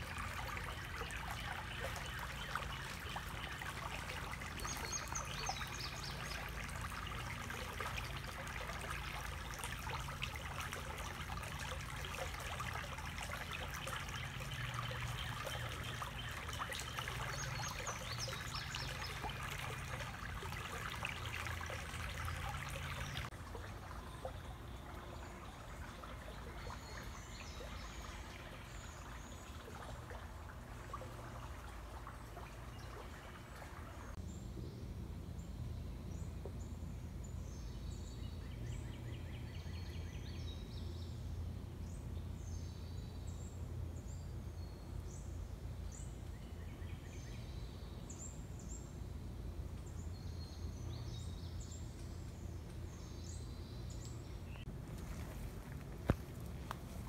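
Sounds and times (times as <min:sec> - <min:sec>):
creek water babbling over stones: 0:00.0 - 0:34.2.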